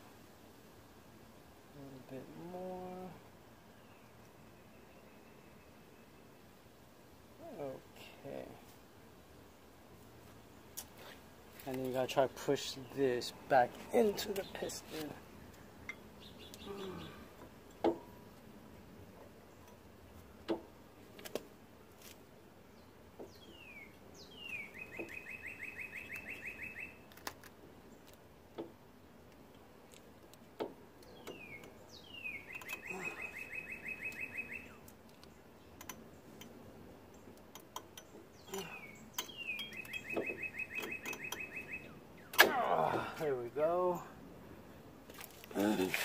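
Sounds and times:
songbird trilling: 0:15.8 - 0:17.3, 0:23.2 - 0:27.0, 0:31.0 - 0:34.9, 0:38.0 - 0:42.4
tool clicks and taps on metal: 0:37.3 - 0:41.5.

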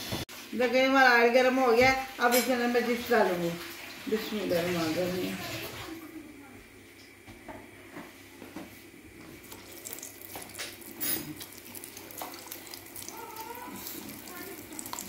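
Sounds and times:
hot oil sizzling and crackling: 0:00.0 - 0:05.8, 0:09.4 - 0:15.0
oil spitting: 0:09.4 - 0:15.0.

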